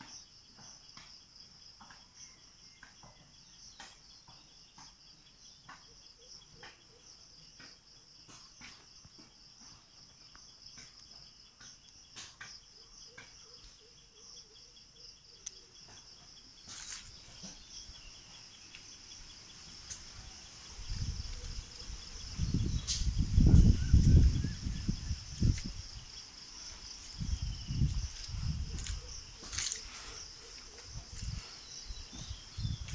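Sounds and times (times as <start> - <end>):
crickets trilling: 0.0 - 32.9
low rumble on microphone: 20.8 - 26.1.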